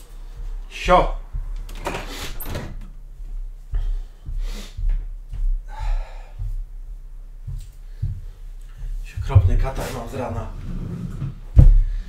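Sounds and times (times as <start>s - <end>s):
man sniffing: 4.4s - 4.8s
movement bumps near microphone: 8.8s - 12.0s.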